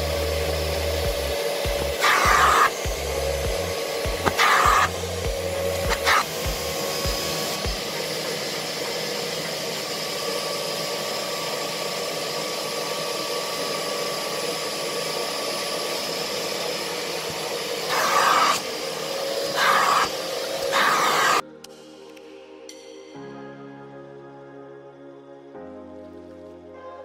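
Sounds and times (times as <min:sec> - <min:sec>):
vacuum cleaner whining hum: 0:00.0 - 0:21.4
vacuum suction rushes: 0:00.0 - 0:21.4.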